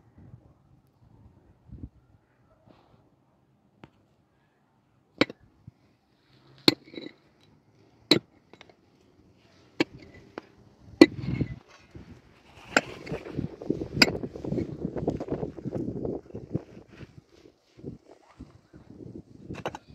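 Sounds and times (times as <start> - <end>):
soil and stones scraping: 6.2 - 19.9
pickaxe striking stony earth: 12.6 - 14.6.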